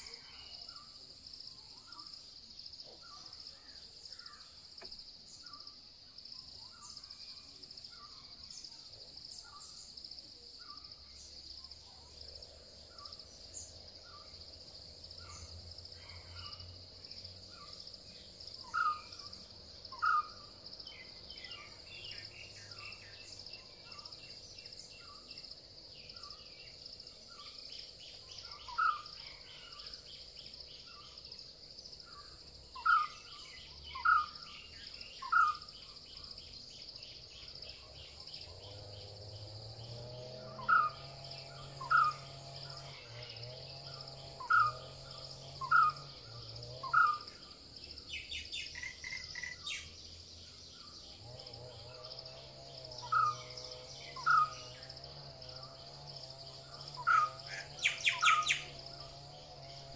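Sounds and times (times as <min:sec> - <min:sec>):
loud bird calls: 0:17.5 - 0:31.3, 0:32.1 - 0:59.9
high-pitched insect drone: 0:32.0 - 0:59.9.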